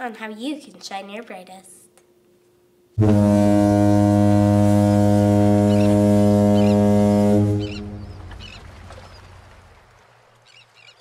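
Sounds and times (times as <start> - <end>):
foghorn blast: 3.0 - 8.8
high bird calls: 5.6 - 6.9, 7.6 - 9.4.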